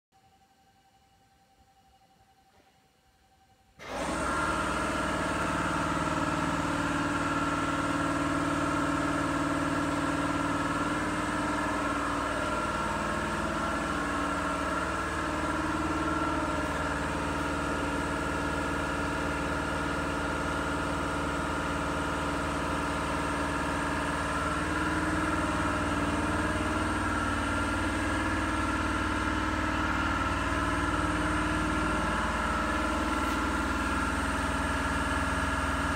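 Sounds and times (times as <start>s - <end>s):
machine mechanical drone: 3.3s - 35.9s.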